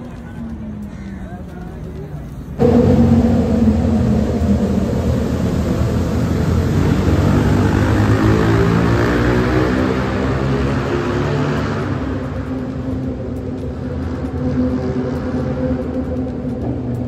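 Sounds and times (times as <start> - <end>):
motorcycles passing: 0.0 - 17.0
steady engine note: 2.6 - 16.7.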